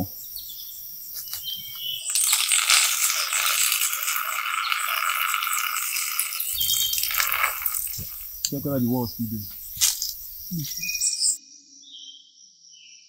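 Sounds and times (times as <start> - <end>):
force field hiss with held tones: 0.0 - 11.4
faint clicks: 6.4 - 11.0.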